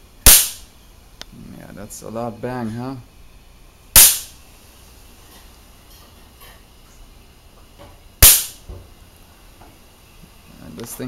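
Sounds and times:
capacitor discharge bang: 0.2 - 0.8, 3.9 - 4.4, 8.2 - 8.8.

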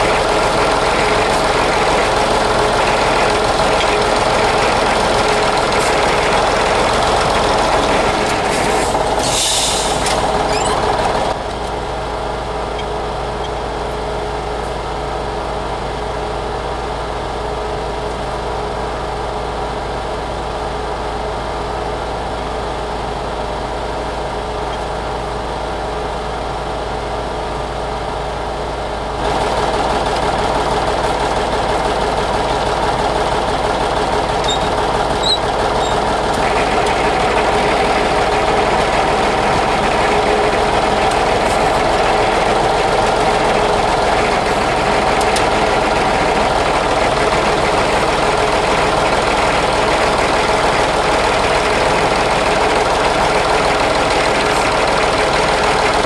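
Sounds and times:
diesel tractor engine running: 0.0 - 56.0
short hiss: 8.8 - 10.1.

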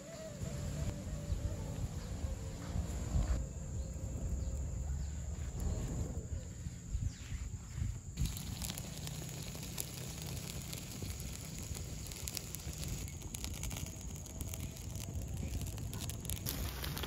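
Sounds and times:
wood fire crackling and popping: 8.2 - 17.0.

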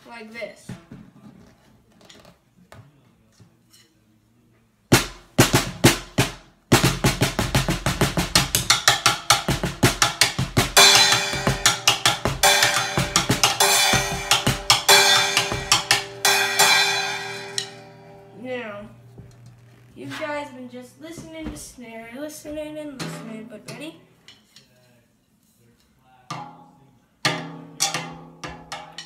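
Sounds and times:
muted snare drum strokes: 4.9 - 18.2.

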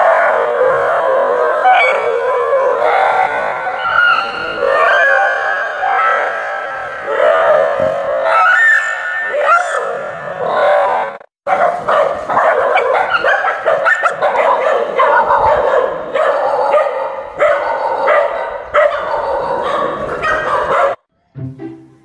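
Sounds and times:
dogs barking and yelping: 0.0 - 21.1.

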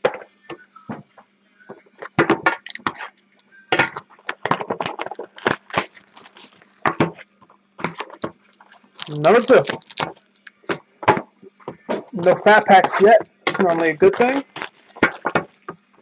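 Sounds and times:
cardboard box tearing open: 9.0 - 10.1.

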